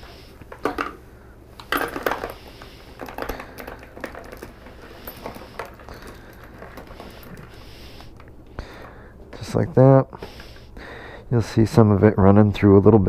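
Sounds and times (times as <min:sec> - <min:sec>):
metal cartridge cases clinking: 0:01.6 - 0:08.3.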